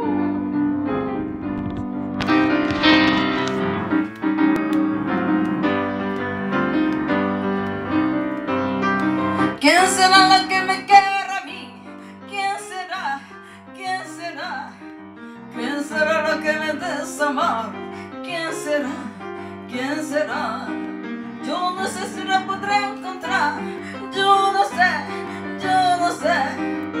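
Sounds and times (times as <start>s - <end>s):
piano chords: 0.0s - 27.0s
woman singing: 9.2s - 14.8s, 15.5s - 20.8s, 21.4s - 27.0s.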